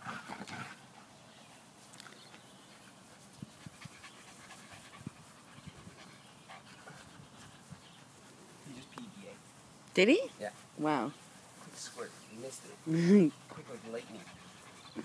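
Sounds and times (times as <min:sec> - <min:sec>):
dog panting: 0:02.6 - 0:08.4, 0:10.5 - 0:15.0.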